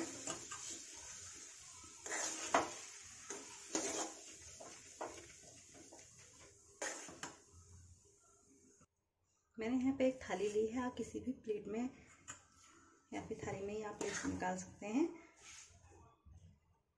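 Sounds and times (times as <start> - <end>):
spoon scraping a metal pan: 0.0 - 7.5, 13.4 - 14.7.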